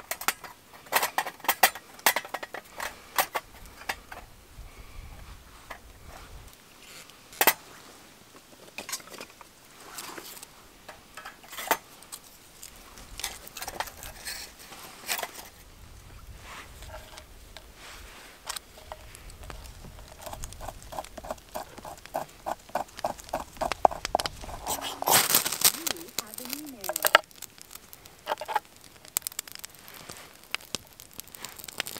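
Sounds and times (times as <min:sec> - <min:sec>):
sticks clicking and knocking: 0:18.8 - 0:31.9
knife scraping bark: 0:20.1 - 0:25.8.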